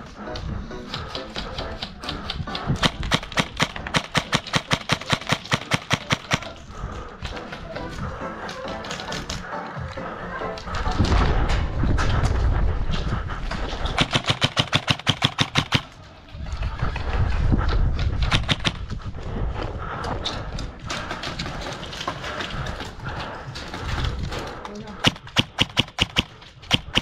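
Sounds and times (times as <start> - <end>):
low rumbling handling noise: 10.8 - 24.7.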